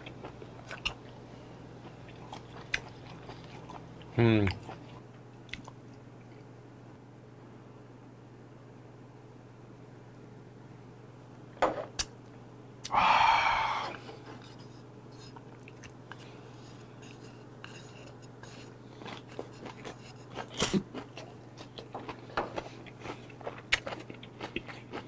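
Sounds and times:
chewing and lip smacks: 0.0s - 1.2s, 1.8s - 6.5s, 15.3s - 16.3s, 17.1s - 25.0s
man exhaling breathily: 12.9s - 14.0s.

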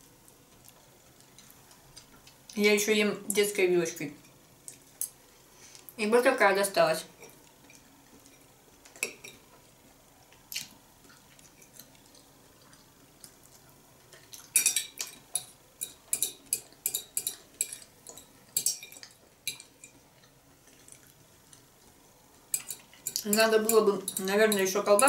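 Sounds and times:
metal fork clinking on ceramic plate: 14.6s - 19.7s, 22.6s - 25.0s.

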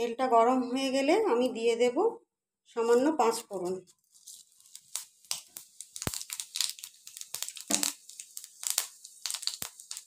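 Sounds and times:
seeds crackling in hot oil: 3.0s - 10.0s.

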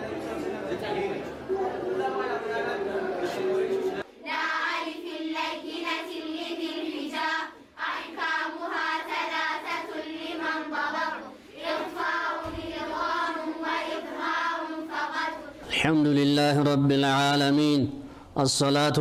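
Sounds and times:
group chanting in unison: 4.2s - 15.7s.

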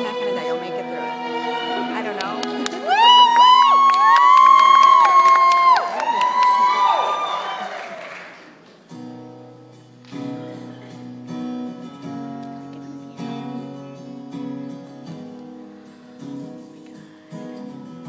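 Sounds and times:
crowd cheering: 2.0s - 8.7s
acoustic guitar strummed: 8.9s - 18.0s.

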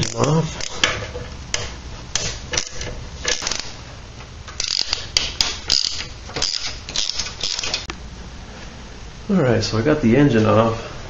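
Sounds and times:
wrench clicking and scraping on nut: 0.0s - 3.7s, 4.6s - 7.9s.

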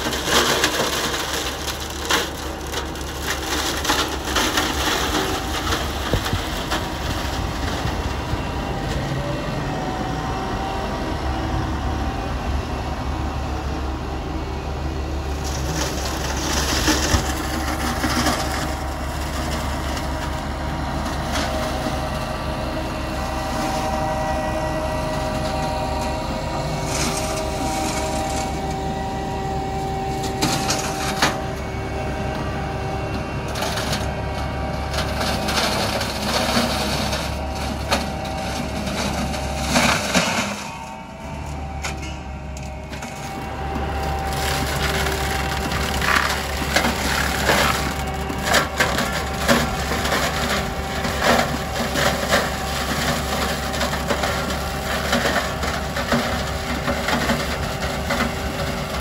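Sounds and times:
hedge cutter whine: 0.0s - 59.0s
tractor running: 0.0s - 59.0s
wood cracking and clattering: 44.3s - 50.4s.

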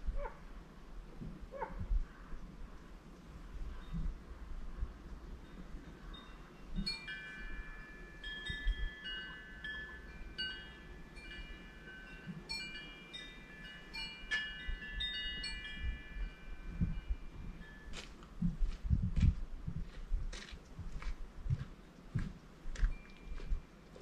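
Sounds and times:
wind chime ringing: 5.4s - 18.0s.

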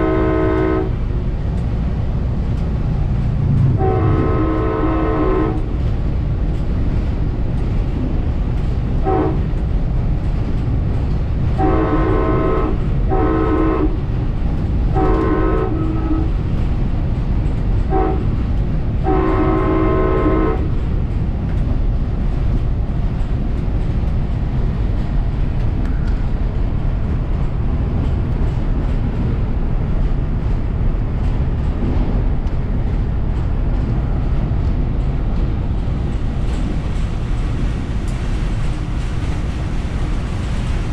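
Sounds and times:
train air horn blasts: 0.0s - 1.0s, 3.7s - 5.7s, 9.0s - 9.5s, 11.6s - 14.0s, 14.9s - 16.4s, 17.9s - 18.4s, 19.0s - 20.7s
train rumbling on rails: 0.0s - 40.9s.

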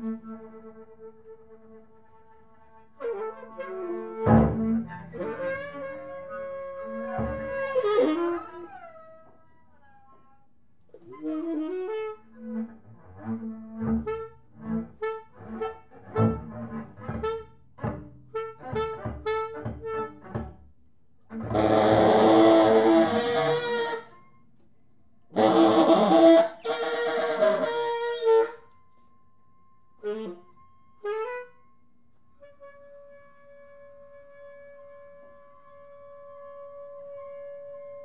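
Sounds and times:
double bass: 3.6s - 9.2s, 11.1s - 20.6s, 21.3s - 24.2s
tenor saxophone improvising: 13.4s - 20.4s, 21.4s - 24.2s, 25.3s - 29.1s, 30.0s - 31.6s.

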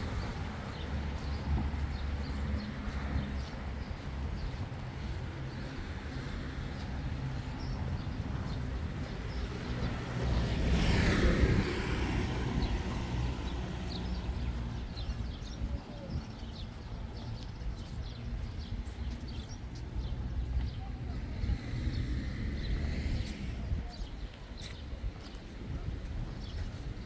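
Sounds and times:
road traffic: 0.0s - 27.0s
vehicle passing close by: 5.6s - 15.2s, 21.0s - 23.8s.

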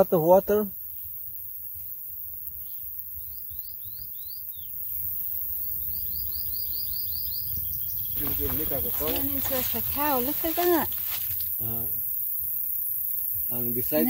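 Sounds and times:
bird chirping: 2.6s - 5.0s, 5.8s - 11.2s
person speaking: 8.2s - 11.8s.

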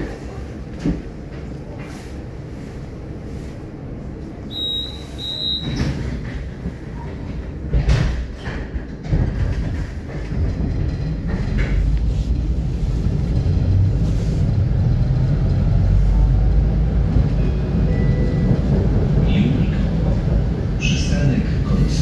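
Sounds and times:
tram wheels rumbling on rail: 0.0s - 22.0s
short high beeps: 4.5s - 5.8s
heavy clunks over rail joints: 5.6s - 12.0s.

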